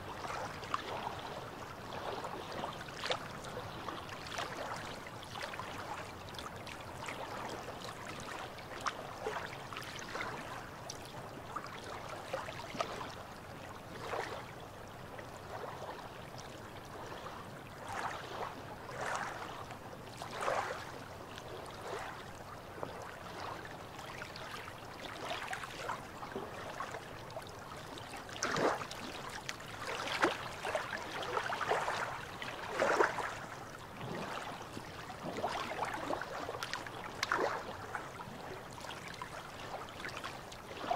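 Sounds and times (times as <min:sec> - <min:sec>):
small waves lapping on rocks: 0:17.0 - 0:40.9.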